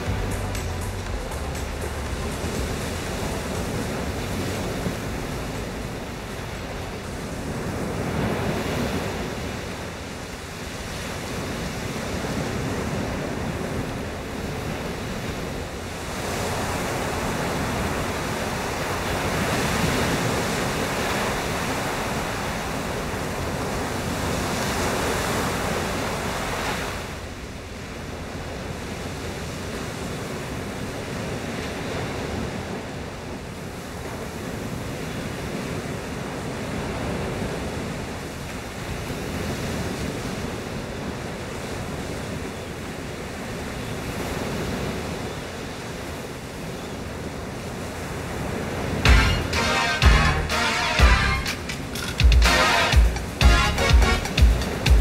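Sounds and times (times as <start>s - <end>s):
surf breaking on beach: 0.0s - 27.4s, 47.4s - 55.0s.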